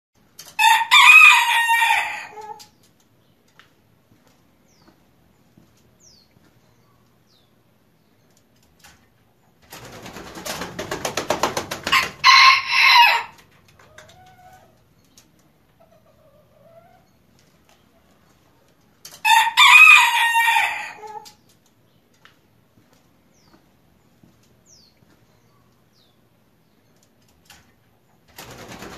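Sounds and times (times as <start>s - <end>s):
rooster crowing: 0.6s - 2.6s, 11.9s - 13.4s, 19.2s - 21.0s
wing flaps: 9.6s - 12.2s, 28.3s - 28.9s.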